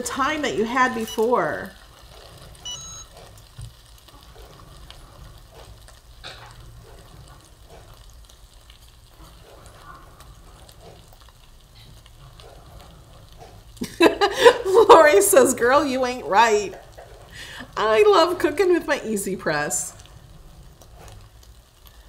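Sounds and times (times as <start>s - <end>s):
chicken sizzling faintly: 0.0s - 22.0s
short electronic beep: 2.6s - 3.2s.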